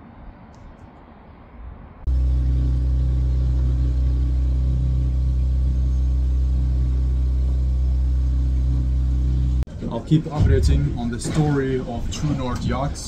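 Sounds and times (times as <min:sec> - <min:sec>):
loud low rumble and hum: 0:01.9 - 0:13.0.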